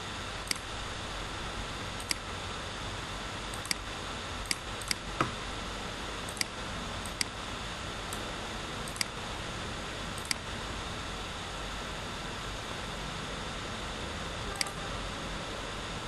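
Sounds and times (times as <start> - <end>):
computer mouse clicking: 0.4 - 0.7, 2.0 - 2.2, 3.5 - 3.8, 4.5 - 5.1, 6.3 - 7.4, 8.9 - 9.2, 10.2 - 10.4, 14.5 - 14.8.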